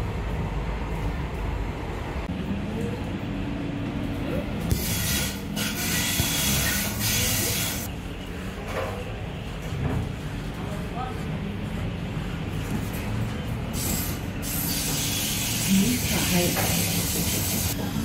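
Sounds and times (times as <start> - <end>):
tram wheels rumbling on rail: 0.0 - 4.7.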